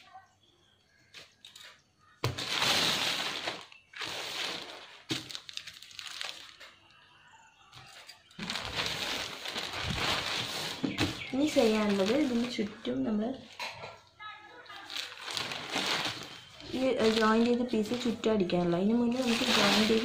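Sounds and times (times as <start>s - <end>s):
cloth rustling: 8.4s - 12.7s, 18.9s - 20.0s.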